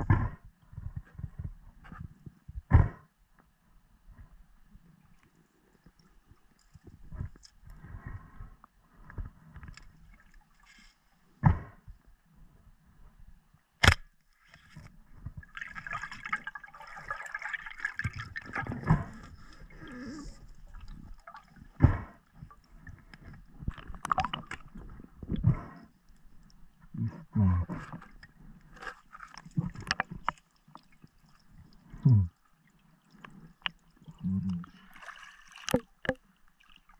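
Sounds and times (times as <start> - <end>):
water gurgling underwater: 15.3 - 25.7, 29.3 - 32.4.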